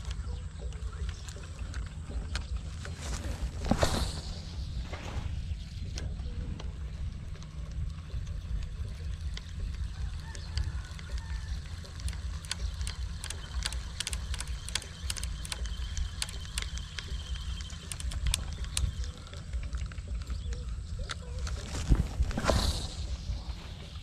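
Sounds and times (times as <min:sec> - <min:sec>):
sharp clicks: 0:00.0 - 0:04.6, 0:05.7 - 0:23.3
wind rumbling on microphone: 0:17.5 - 0:24.0.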